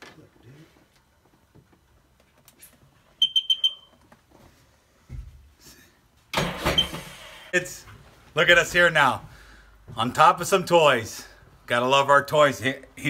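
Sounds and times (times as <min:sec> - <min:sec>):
high-pitched electronic beeps: 0:03.2 - 0:03.9.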